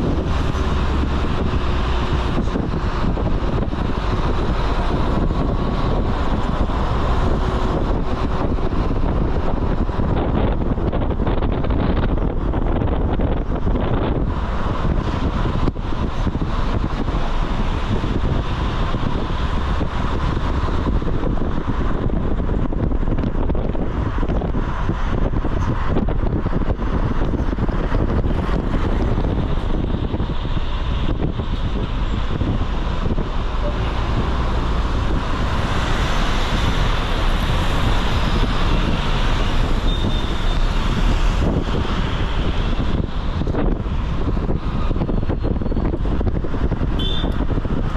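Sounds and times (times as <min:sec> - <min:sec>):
road traffic noise: 0:00.0 - 0:47.9
wind rumbling on microphone: 0:00.0 - 0:47.9.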